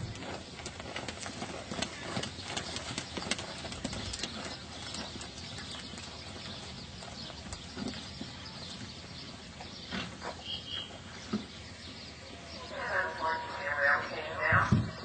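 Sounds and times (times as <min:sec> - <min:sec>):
horse hoofbeats on dirt: 0:00.0 - 0:12.6.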